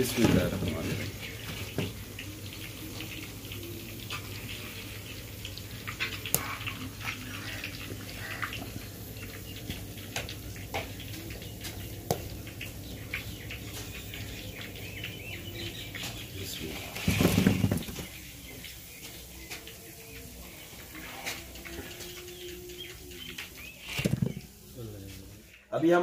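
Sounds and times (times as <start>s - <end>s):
fried food crackling and ticking: 0.0s - 25.7s.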